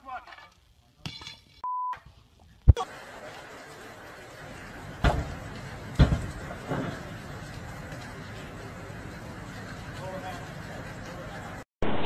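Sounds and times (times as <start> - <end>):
loud bangs on a door: 6.0 - 6.3.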